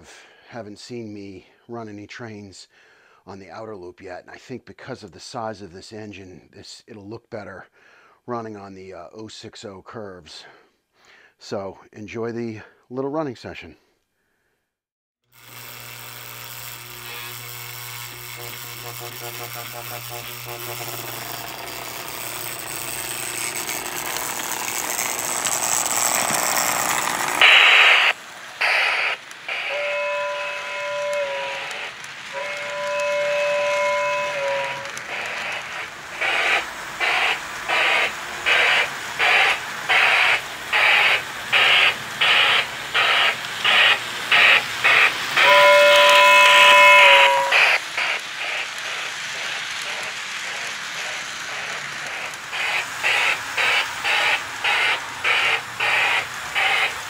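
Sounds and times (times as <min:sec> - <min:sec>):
model steam locomotive chuffing: 0:15.4 - 0:57.0
model train whistle blasts: 0:16.7 - 0:57.0.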